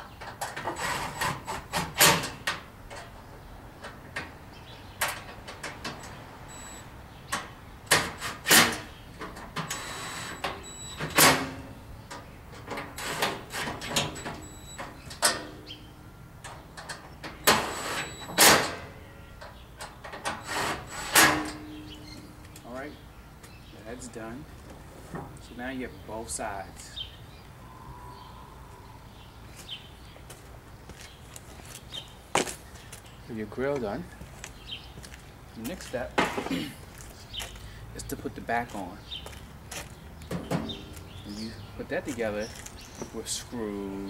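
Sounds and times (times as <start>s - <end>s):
metal panels knocking and clanking: 40.3s - 41.0s.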